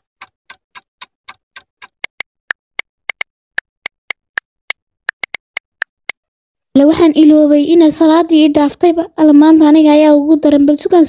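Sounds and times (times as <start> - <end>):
clock ticking: 0.0 - 2.3.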